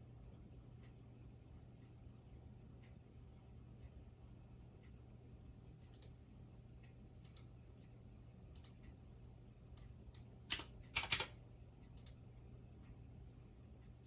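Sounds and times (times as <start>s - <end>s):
faint steady hum: 0.0s - 14.0s
computer mouse clicks: 5.8s - 6.2s, 7.2s - 7.5s, 8.5s - 8.9s, 9.7s - 12.2s
keyboard keystrokes: 10.5s - 11.4s.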